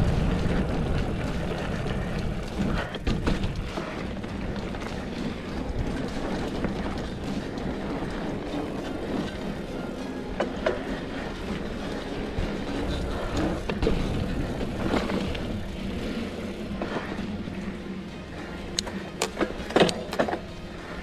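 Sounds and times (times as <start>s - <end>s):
wind on microphone: 0.0s - 9.5s
bike rattling and knocking: 0.0s - 21.0s
bike tyres rumbling on dirt: 0.0s - 21.0s.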